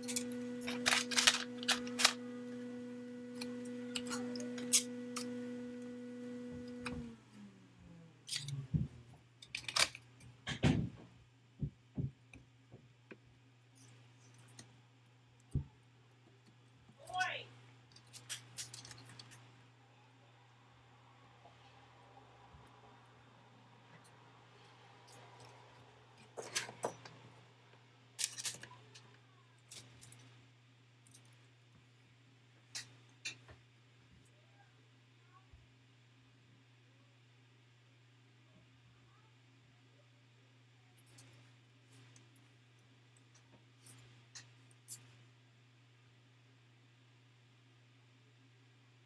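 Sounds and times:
laptop parts clicking and clattering: 0:00.0 - 0:02.2, 0:09.4 - 0:10.8, 0:28.2 - 0:29.1
low hum: 0:00.0 - 0:09.2.

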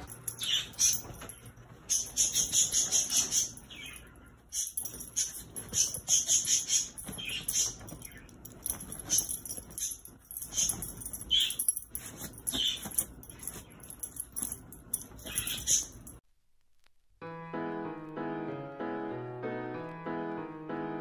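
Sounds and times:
animals scuffling on bedding: 0:00.0 - 0:16.1
collar jingling: 0:00.0 - 0:16.2.

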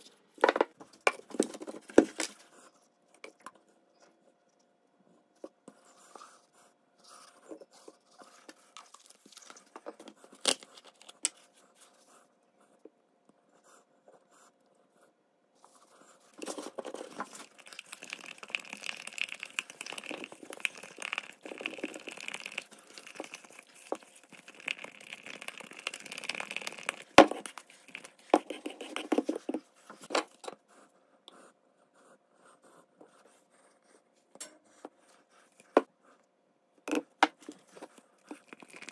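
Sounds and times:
stirring scraping in plastic cup: 0:15.8 - 0:30.1, 0:37.4 - 0:38.9.

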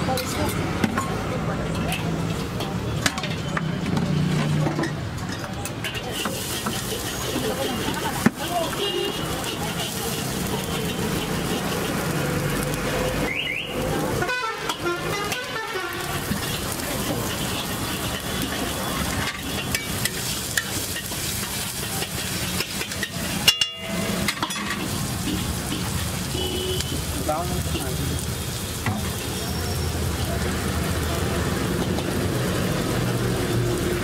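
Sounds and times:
street traffic: 0:00.0 - 0:34.0
vegetables sizzling on griddle: 0:00.0 - 0:34.0
car horn toots: 0:14.2 - 0:16.2, 0:26.3 - 0:27.1.

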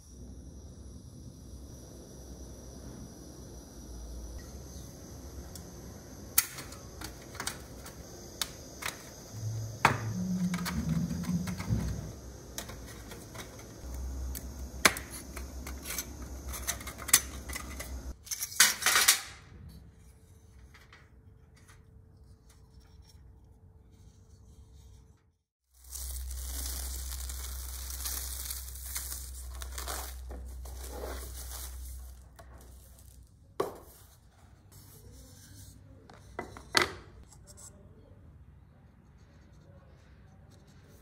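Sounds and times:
faint steady hum: 0:00.0 - 0:18.2, 0:25.8 - 0:41.0
small hard objects clinking: 0:25.8 - 0:33.2.

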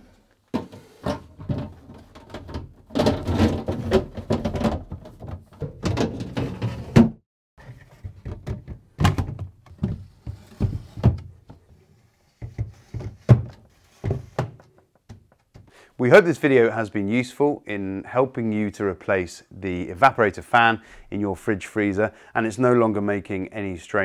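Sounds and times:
plastic drawers knocking: 0:00.5 - 0:07.2, 0:07.9 - 0:11.6, 0:12.4 - 0:15.3.

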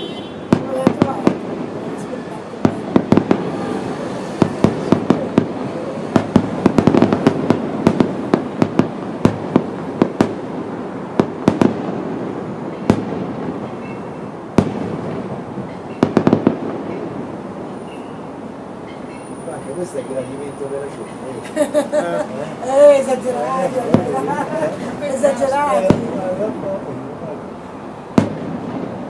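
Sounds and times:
firework shells bursting: 0:00.0 - 0:19.3, 0:28.1 - 0:29.0
steady background din: 0:00.0 - 0:29.0.

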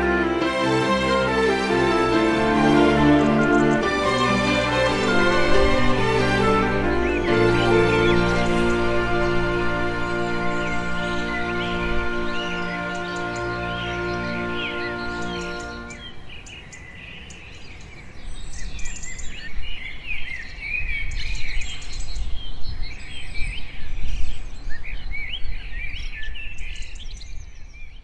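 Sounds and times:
music: 0:00.0 - 0:16.1
small birds chirping: 0:02.4 - 0:04.0, 0:06.4 - 0:28.0.

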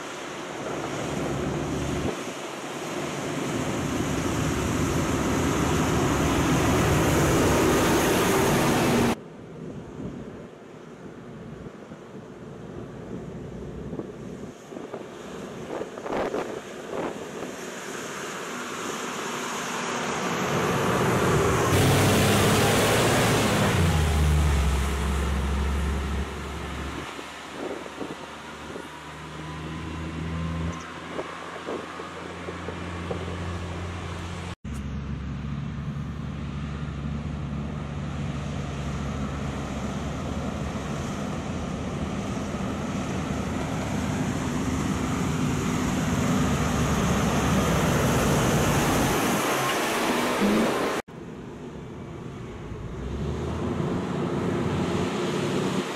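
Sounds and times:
dump truck diesel engine driving by: 0:17.5 - 0:51.0.

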